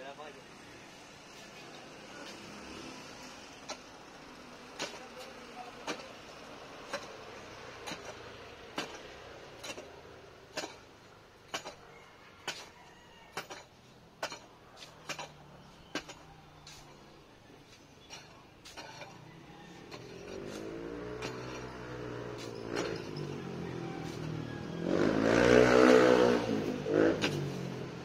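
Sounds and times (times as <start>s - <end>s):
digging tool striking stony ground: 4.8s - 5.1s, 6.8s - 7.2s, 7.8s - 9.9s, 10.5s - 10.9s, 11.5s - 11.8s, 12.4s - 12.7s, 27.2s - 27.5s.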